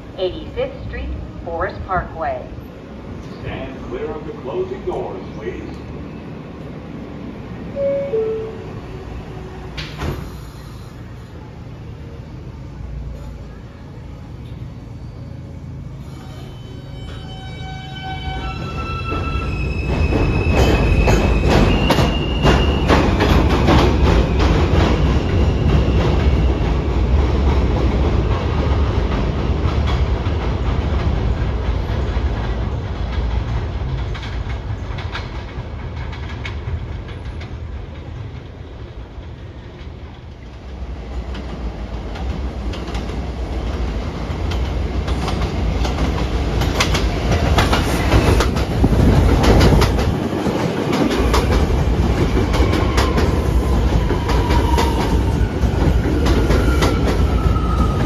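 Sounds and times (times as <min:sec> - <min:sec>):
train wheels clattering over rail joints: 0:28.6 - 0:40.2, 0:41.3 - 0:57.3.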